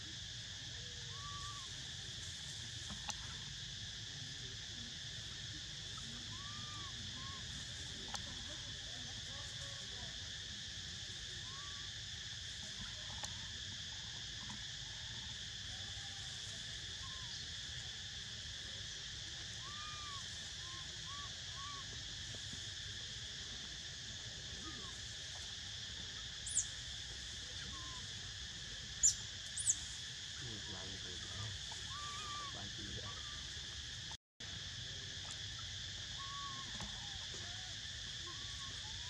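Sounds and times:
insect chorus droning: 0:00.0 - 0:39.0
faint short calls: 0:30.4 - 0:33.5, 0:36.1 - 0:37.7.

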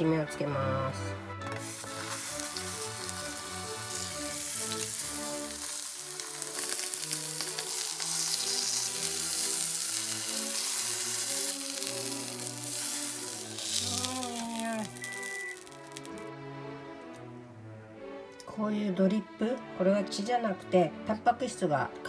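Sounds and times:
background music: 0:00.0 - 0:22.0
beef sizzling in frying pan: 0:01.6 - 0:16.3.

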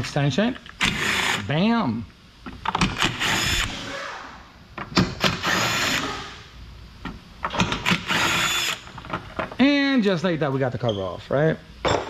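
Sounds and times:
power tool spinning bolts: 0:00.8 - 0:01.5, 0:02.8 - 0:04.0, 0:05.2 - 0:06.4, 0:07.5 - 0:08.9.

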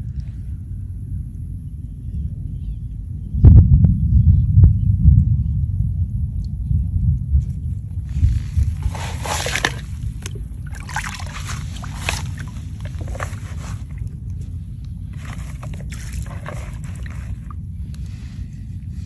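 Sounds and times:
low rumble: 0:00.0 - 0:19.0
water splashing in plastic basin: 0:08.0 - 0:14.5, 0:15.1 - 0:17.6.

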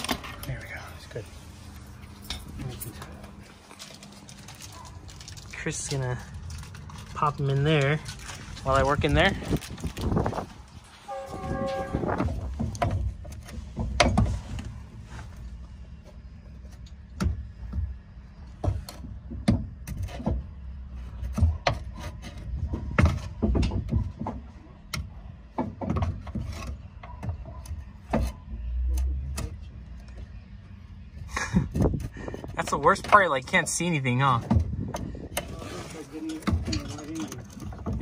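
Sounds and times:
metallic knocks and clanks: 0:36.2 - 0:38.0.

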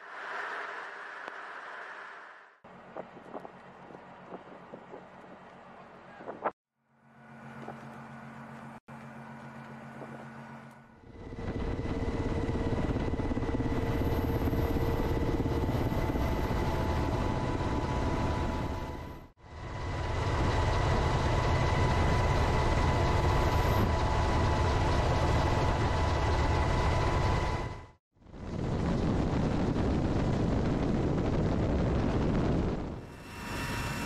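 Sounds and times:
aircraft engine and rotor whine: 0:09.4 - 0:34.0.

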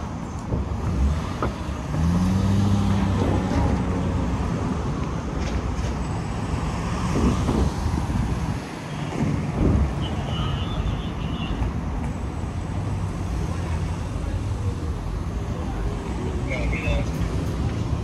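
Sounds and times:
vehicles passing on road: 0:00.0 - 0:18.0.

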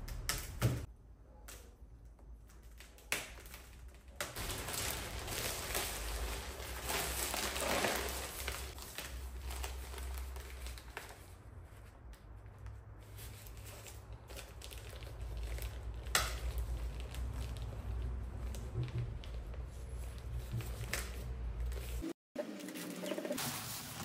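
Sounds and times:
plastic film crinkling: 0:02.5 - 0:21.2.

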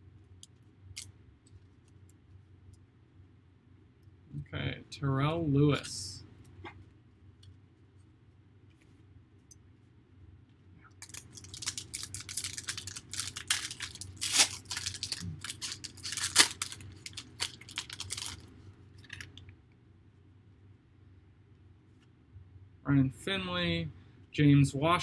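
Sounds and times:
foil wrapper tearing and crinkling: 0:11.0 - 0:19.4.

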